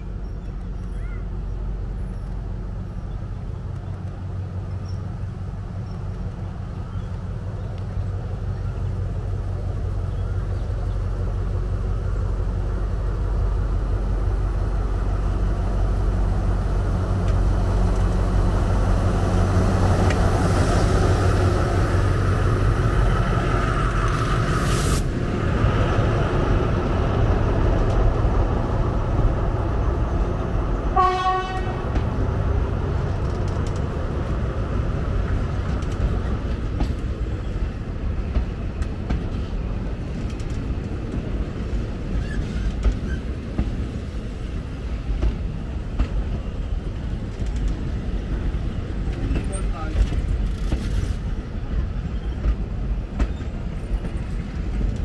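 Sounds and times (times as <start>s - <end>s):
air-brake hiss: 24.4s - 25.2s.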